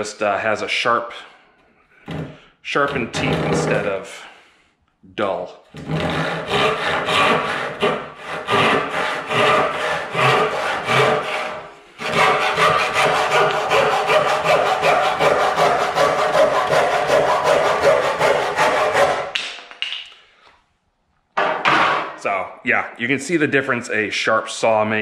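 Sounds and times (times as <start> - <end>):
hand saw cutting wood: 3.1 - 4.0, 5.8 - 19.4.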